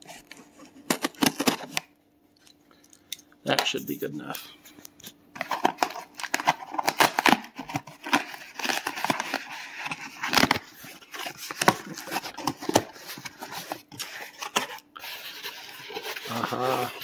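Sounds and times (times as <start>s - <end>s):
cardboard box being torn open: 5.4s - 10.6s
cardboard ripping: 5.4s - 17.0s.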